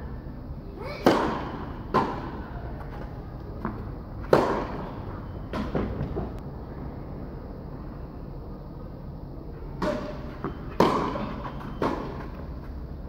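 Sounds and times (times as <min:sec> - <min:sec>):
racket hitting tennis ball: 0:00.8 - 0:02.9, 0:03.6 - 0:06.3, 0:09.8 - 0:12.3
tennis ball bouncing: 0:01.0 - 0:03.0, 0:03.6 - 0:06.3, 0:09.8 - 0:12.3.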